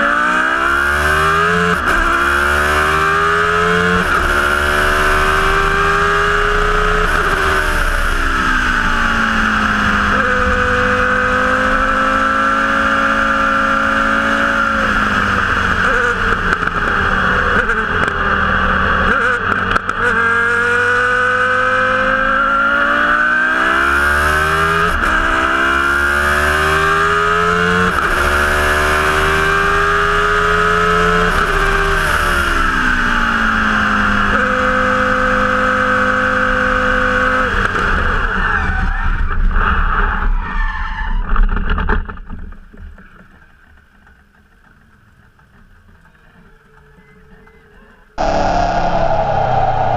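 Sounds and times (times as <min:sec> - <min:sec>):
racing car engine revving: 0:00.0 - 0:37.8, 0:48.2 - 0:49.9.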